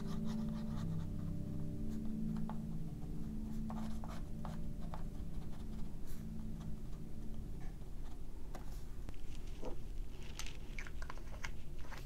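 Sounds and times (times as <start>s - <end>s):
pen nib scratching paper: 0.0s - 1.4s, 3.6s - 6.7s.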